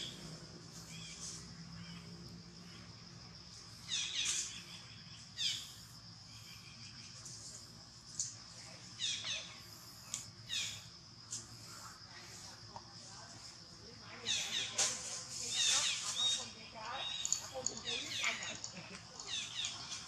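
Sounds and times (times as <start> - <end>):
high insect drone: 0.0 - 20.0
high falling chirping calls: 3.8 - 7.2, 15.4 - 20.0.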